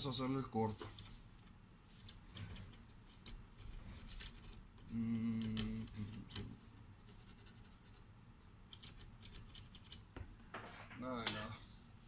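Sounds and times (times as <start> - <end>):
low steady hum: 0.0 - 12.0
screwdriver metal clicks and scrapes: 0.8 - 6.5, 8.7 - 10.0.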